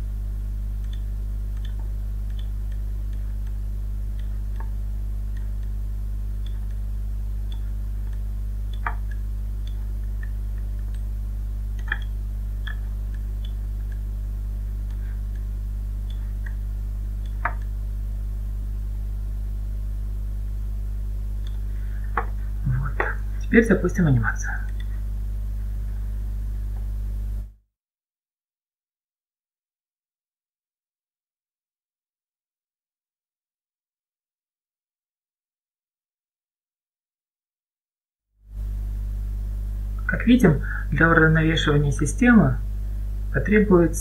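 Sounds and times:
low hum: 0.0s - 27.6s, 38.5s - 44.0s
computer mouse clicks: 0.8s - 5.7s, 7.5s - 11.1s, 11.8s - 14.0s, 17.2s - 17.7s.

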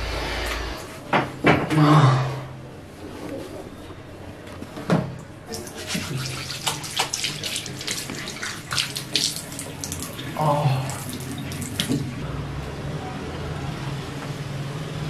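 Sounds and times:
water splashing in a sink: 5.5s - 12.2s.

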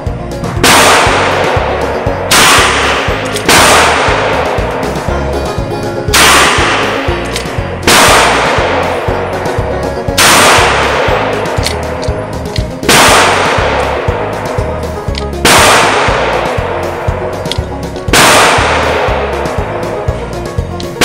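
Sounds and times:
background music with steady beat: 0.0s - 21.0s
handgun shots echoing indoors: 0.6s - 1.4s, 2.3s - 4.6s, 6.1s - 8.9s, 10.2s - 12.1s, 12.9s - 13.9s, 15.4s - 16.6s, 18.1s - 19.2s.

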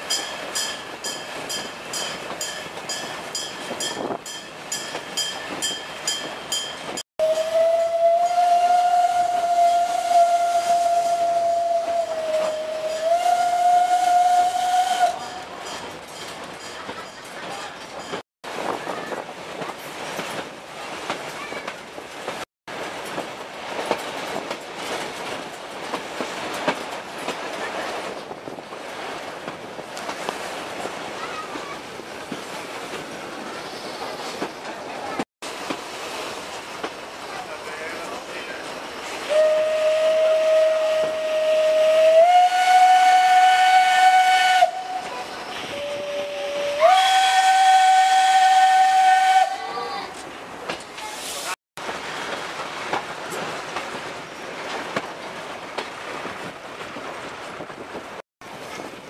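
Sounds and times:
steam train running: 0.0s - 59.0s
steam locomotive whistle: 7.2s - 15.5s, 39.2s - 49.9s.

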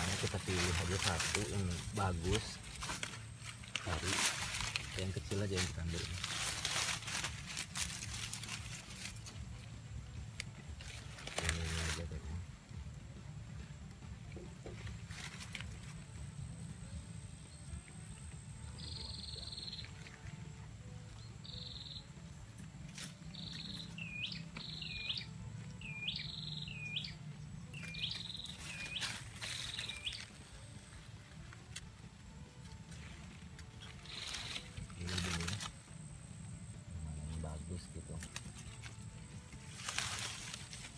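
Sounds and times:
leaves and grass rustling: 0.0s - 40.9s
bird calling high notes: 23.3s - 30.6s.

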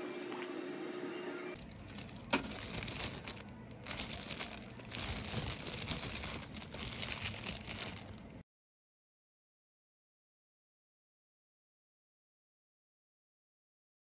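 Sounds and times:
plastic glove crinkling: 1.6s - 8.4s.

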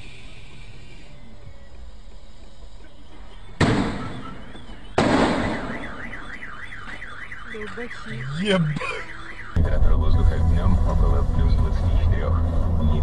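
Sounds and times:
car alarm siren warbling: 2.8s - 13.0s
sharp loud bangs: 3.6s - 6.3s.

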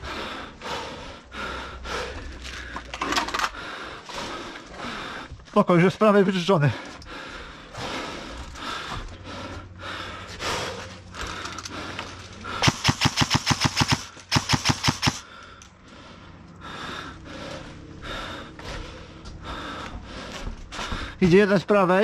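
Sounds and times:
airsoft rifle rapid bursts: 12.6s - 15.2s.

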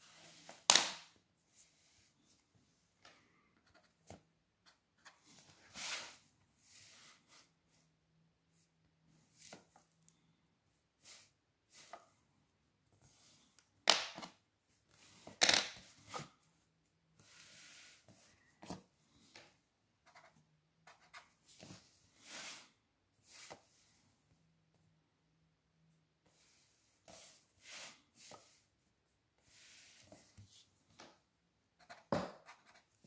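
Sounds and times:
pencil and ruler scraping paper: 17.2s - 18.1s.

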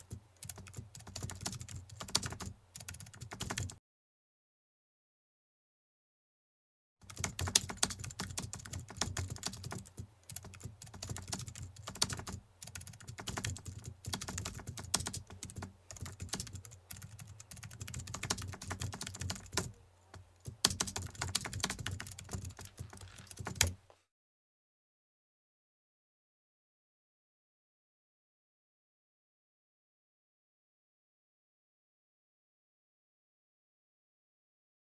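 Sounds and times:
keyboard key clicks: 7.1s - 23.8s.

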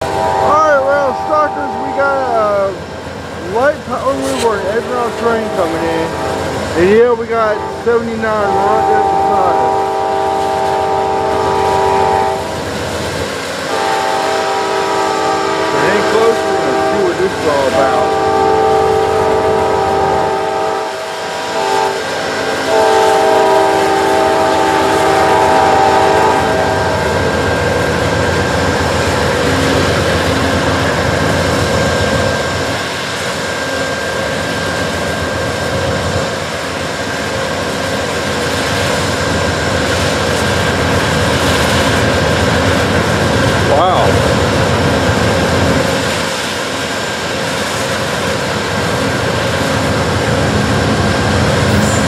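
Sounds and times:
locomotive horn blasts: 0.0s - 2.7s, 4.0s - 12.7s, 13.7s - 27.3s
train rumbling: 0.0s - 52.0s.

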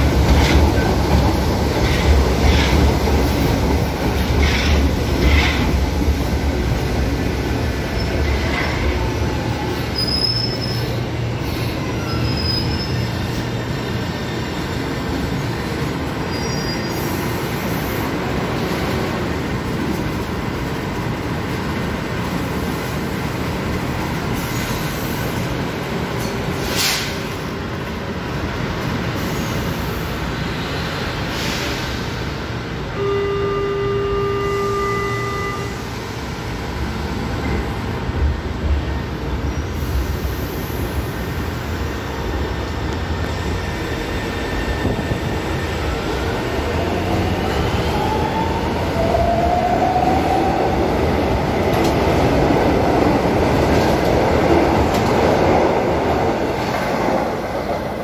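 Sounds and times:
train rumbling past: 0.0s - 58.0s
station noise: 32.9s - 36.2s.

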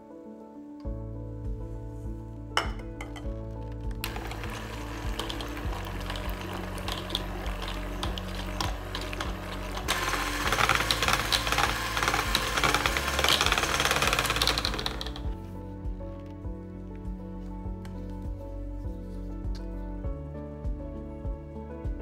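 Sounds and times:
background music: 0.0s - 22.0s
electric hand mixer running: 4.0s - 15.4s.

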